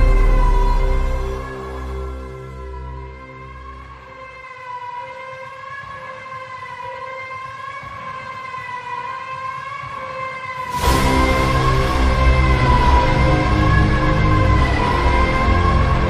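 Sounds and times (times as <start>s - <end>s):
held wavering synth note: 0.0s - 3.8s
loud music beat: 0.0s - 16.0s.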